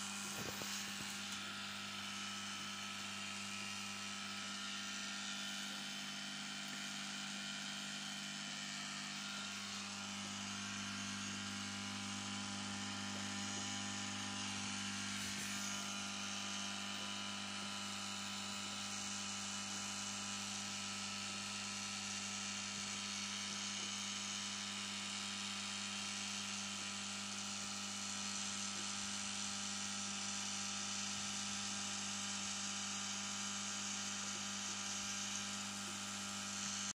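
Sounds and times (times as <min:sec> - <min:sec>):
aquarium pump humming: 0:00.0 - 0:27.5.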